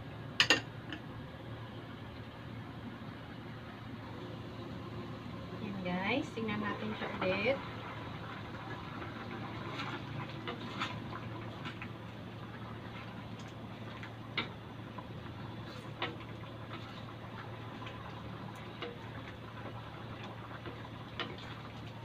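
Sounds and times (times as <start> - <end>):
steady low hum: 0.0 - 22.0
spatula stirring thick stew: 8.5 - 14.6.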